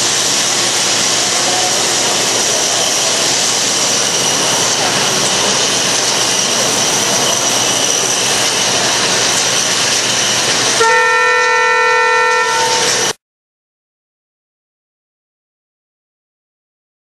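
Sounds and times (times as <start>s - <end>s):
steady rushing noise: 0.0s - 10.8s
horn sounding: 10.8s - 13.2s.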